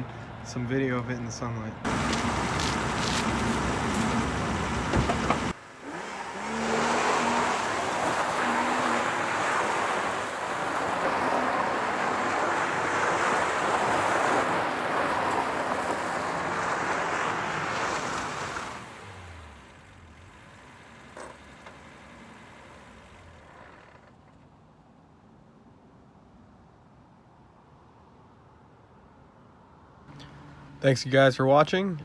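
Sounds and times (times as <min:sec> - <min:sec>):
car engine running: 0:01.9 - 0:11.4
tyre noise: 0:01.9 - 0:13.0.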